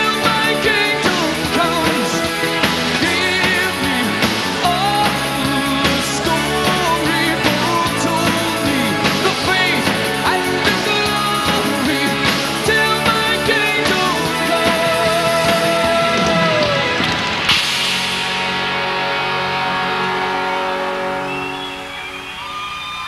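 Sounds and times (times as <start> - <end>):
man singing: 0.0 - 17.0
live rock band playing: 0.0 - 23.0.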